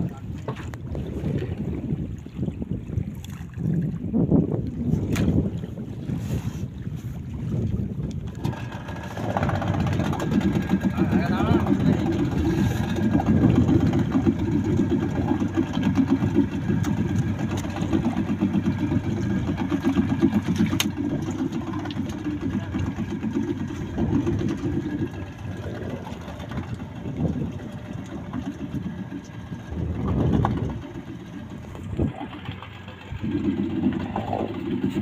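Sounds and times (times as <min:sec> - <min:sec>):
outboard motor idling: 0:00.0 - 0:35.0.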